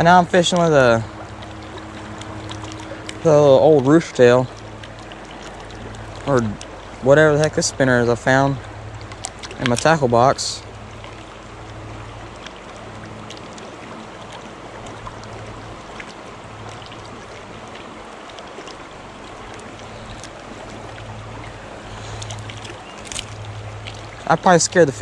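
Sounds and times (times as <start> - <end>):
creek water rippling: 0.0 - 25.0
faint clicks: 12.3 - 24.8.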